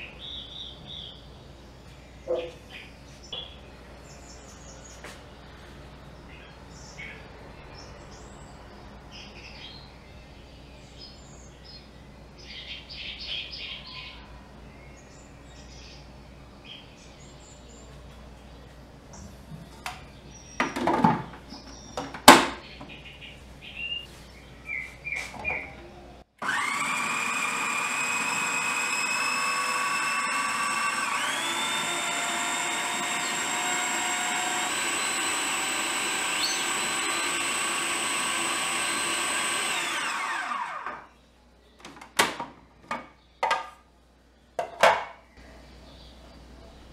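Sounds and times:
faint bird chirps: 0:09.2 - 0:20.6
food processor motor whining: 0:26.4 - 0:41.1.

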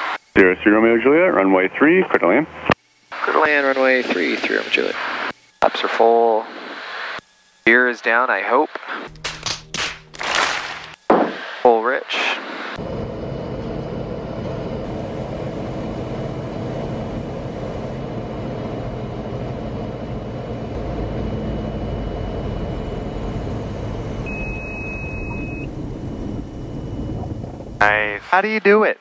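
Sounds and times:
aircraft engine and propeller droning: 0:12.7 - 0:28.7
wheels rumbling on runway: 0:12.8 - 0:28.4.

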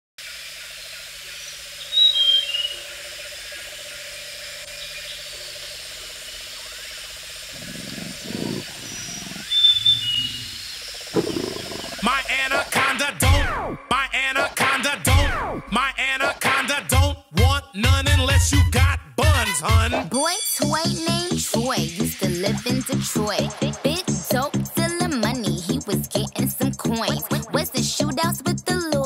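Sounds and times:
birds calling: 0:06.6 - 0:12.7
low animal growls: 0:07.4 - 0:12.4
music: 0:12.1 - 0:29.0.

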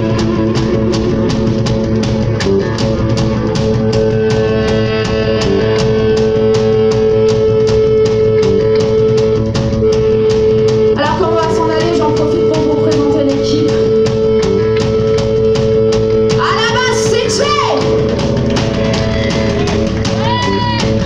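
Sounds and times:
drum kit beating a rhythm: 0:00.0 - 0:21.0
electric guitars and bass: 0:00.0 - 0:21.0.

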